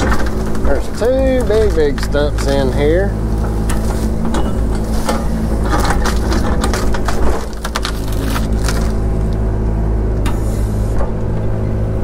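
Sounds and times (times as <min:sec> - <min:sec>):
wood and roots cracking: 0:00.0 - 0:09.6
excavator engine running: 0:00.0 - 0:12.0.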